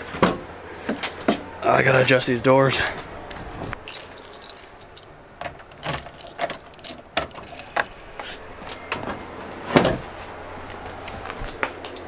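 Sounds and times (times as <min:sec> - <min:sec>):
car keys jangling: 0:03.8 - 0:08.2.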